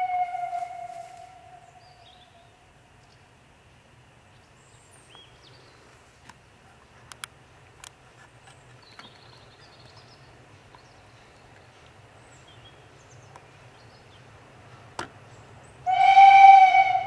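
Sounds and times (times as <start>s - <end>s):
steam locomotive whistle: 0.0s - 1.9s, 15.8s - 17.0s
birds chirping: 8.4s - 16.9s.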